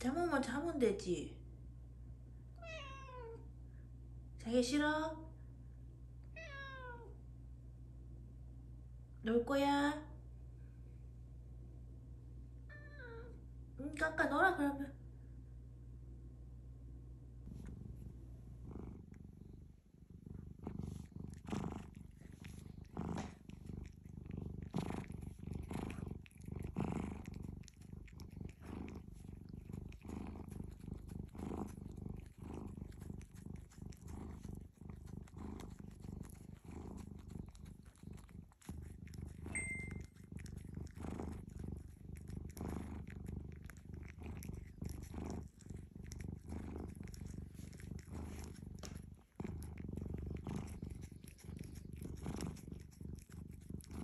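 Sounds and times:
cat purring: 0:17.4 - 0:54.0.

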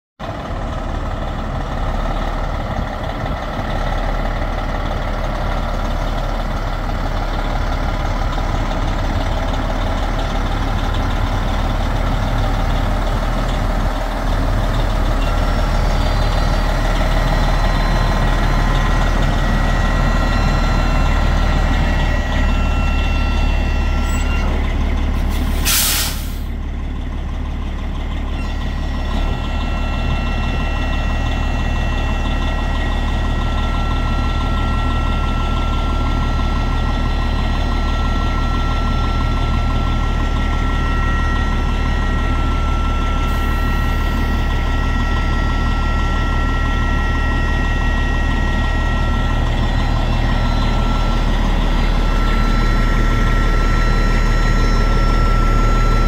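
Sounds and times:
diesel engine idling: 0:00.2 - 0:56.0
air brake hiss: 0:25.2 - 0:26.5.

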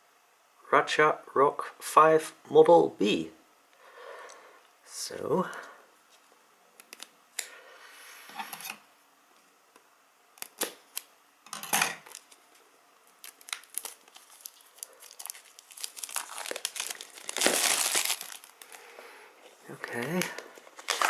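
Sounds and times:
plastic wrap tearing: 0:10.4 - 0:11.1, 0:12.0 - 0:18.8, 0:20.0 - 0:21.0
plastic shrink wrap crinkling: 0:12.0 - 0:21.0.

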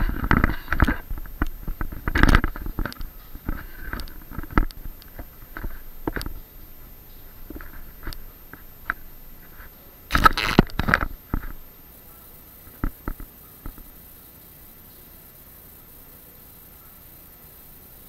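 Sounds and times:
scraping rustle: 0:00.0 - 0:11.6.

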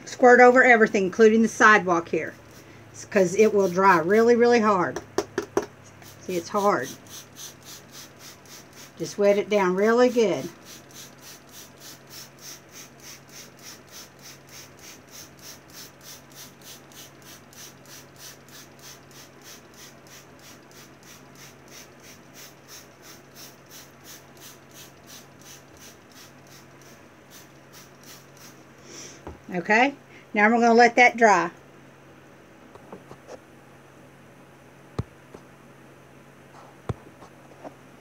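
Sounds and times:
glue sputtering from squeeze bottle: 0:05.9 - 0:09.4, 0:10.0 - 0:28.6.

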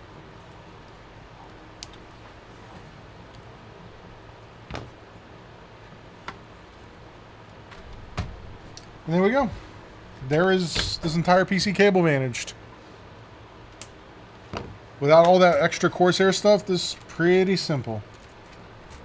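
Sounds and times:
steady background hiss: 0:00.0 - 0:19.0
dull thump: 0:04.7 - 0:05.0.

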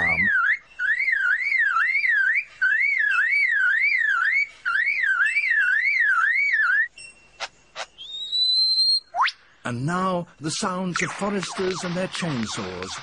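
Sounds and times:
lyrebird mimicking a car alarm: 0:00.0 - 0:06.9.

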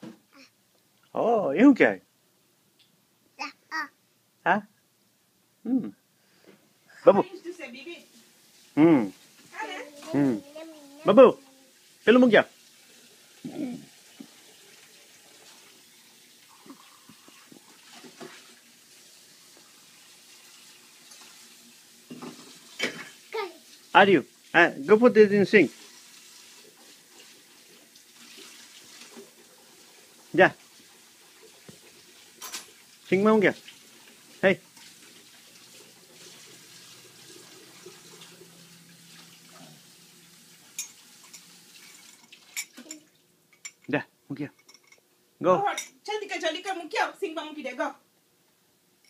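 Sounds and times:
tap water running into sink: 0:11.8 - 0:24.5, 0:25.5 - 0:43.2.

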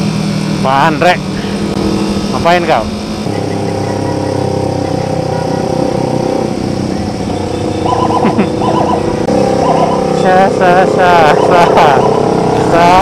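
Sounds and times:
motorcycle engine running: 0:00.0 - 0:13.0
other motorcycles: 0:00.0 - 0:13.0
brief warbling sounds: 0:07.4 - 0:10.2, 0:11.0 - 0:13.0.

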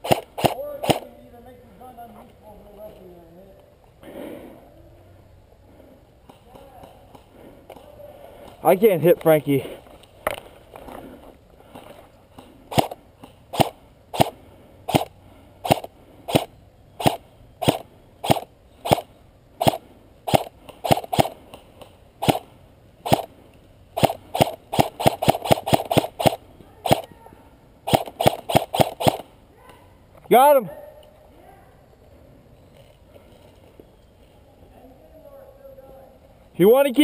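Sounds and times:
airsoft rifle shots: 0:00.0 - 0:01.2, 0:12.7 - 0:21.6, 0:22.2 - 0:23.3, 0:24.0 - 0:27.2, 0:27.8 - 0:29.3.

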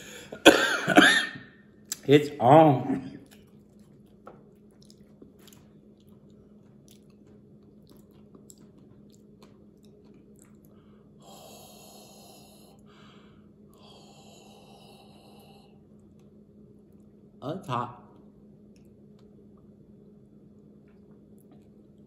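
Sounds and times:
faint steady hum: 0:00.0 - 0:22.0
wet mouth clicks and chewing: 0:03.2 - 0:10.8, 0:16.0 - 0:17.1, 0:20.8 - 0:22.0.

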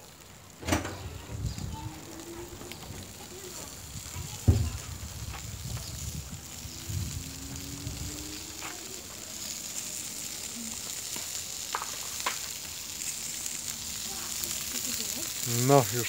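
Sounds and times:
sausages sizzling on a grill: 0:00.0 - 0:16.0
low rumble: 0:04.6 - 0:09.4.

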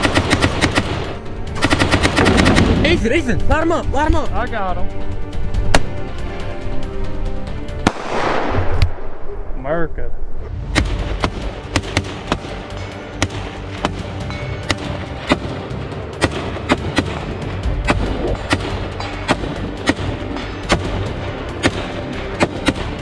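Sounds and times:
rifle shots: 0:00.0 - 0:03.0, 0:07.8 - 0:09.2, 0:10.8 - 0:12.6, 0:16.2 - 0:23.0
background music: 0:00.0 - 0:23.0.

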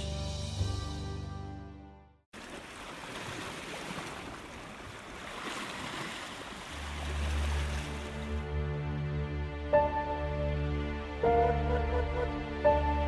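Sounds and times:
low music notes: 0:00.0 - 0:02.2, 0:06.8 - 0:13.0.

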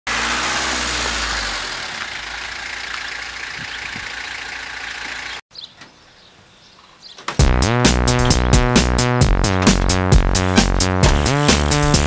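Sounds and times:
van engine running: 0:00.1 - 0:05.4.

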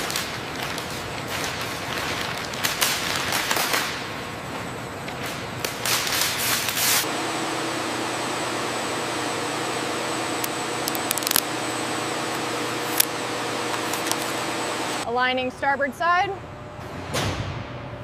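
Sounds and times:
plastic film crinkling: 0:00.0 - 0:04.1, 0:10.8 - 0:11.5
machine hum with high whine: 0:02.8 - 0:18.0.

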